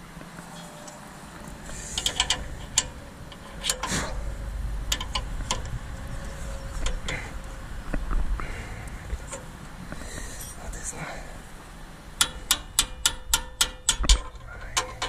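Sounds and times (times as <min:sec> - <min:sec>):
steady low rumble: 0:00.0 - 0:15.0
sharp clicks and ticks: 0:04.9 - 0:05.8, 0:12.2 - 0:15.0.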